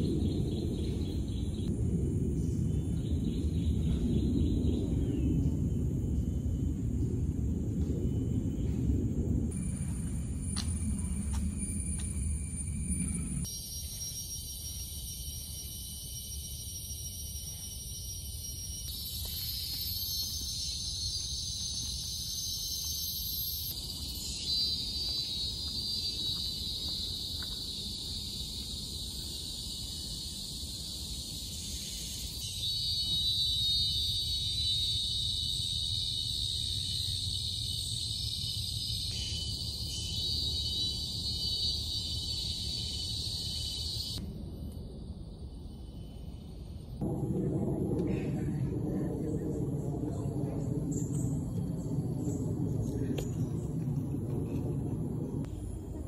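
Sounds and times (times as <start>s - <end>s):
low rumble: 0.0s - 13.5s, 44.2s - 56.0s
forest insects shrilling: 11.0s - 44.2s.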